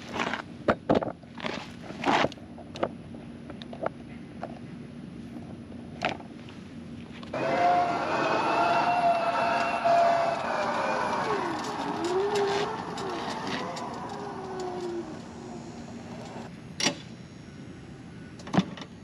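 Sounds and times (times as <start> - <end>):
electric mower whining: 7.3 - 16.5.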